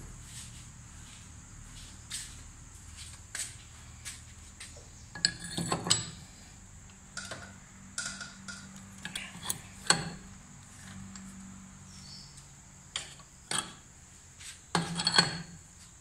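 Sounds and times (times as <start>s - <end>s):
steel tools clanking: 5.1s - 6.4s, 7.1s - 10.2s, 14.7s - 15.5s.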